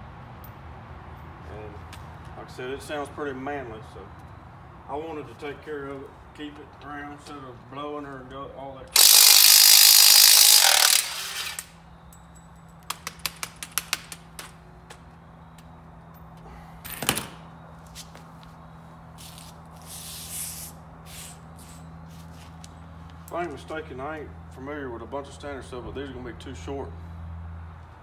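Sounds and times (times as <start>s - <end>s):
power tool running on bolts: 9.0s - 11.8s.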